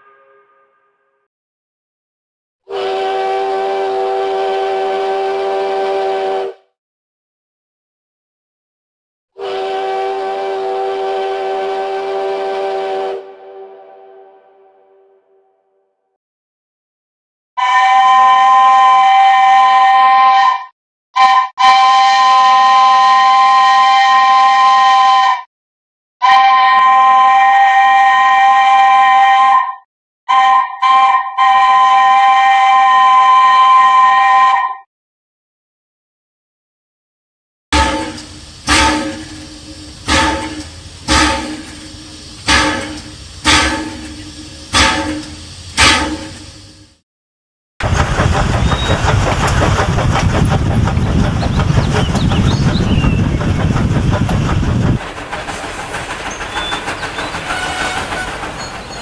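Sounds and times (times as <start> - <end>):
steam locomotive whistle: 0.0 - 1.1, 2.7 - 6.7, 9.4 - 15.4, 17.6 - 25.5, 26.2 - 34.9, 37.8 - 47.0, 56.5 - 59.0
steady tones: 37.8 - 46.9
steam locomotive chuffing: 37.8 - 47.0, 47.8 - 59.0.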